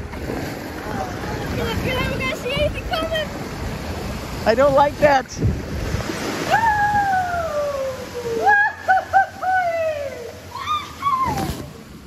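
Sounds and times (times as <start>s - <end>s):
faint rush of water: 0.0s - 12.0s.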